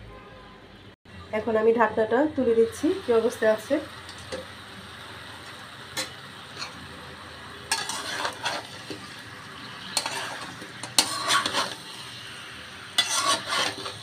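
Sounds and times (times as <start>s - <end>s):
spatula scraping metal pan: 7.7s - 9.0s, 9.8s - 12.1s, 12.9s - 14.0s.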